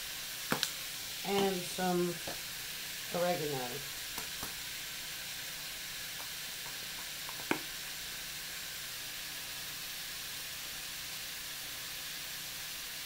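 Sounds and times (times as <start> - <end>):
vegetables sizzling in a wok: 0.0 - 13.0
sharp tap: 0.5 - 0.7, 6.2 - 7.7.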